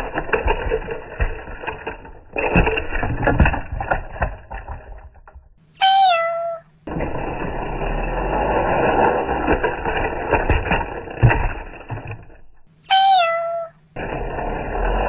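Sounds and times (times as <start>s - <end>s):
toy train rattling on plastic track: 0.0s - 5.2s
cat meowing: 5.8s - 6.7s, 12.9s - 13.8s.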